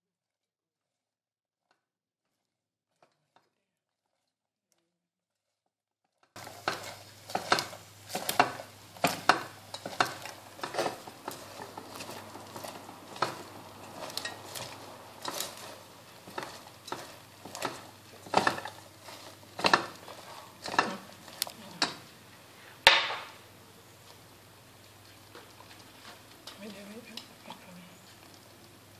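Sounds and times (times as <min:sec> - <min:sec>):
spatula scraping a saucepan: 0:06.4 - 0:22.0.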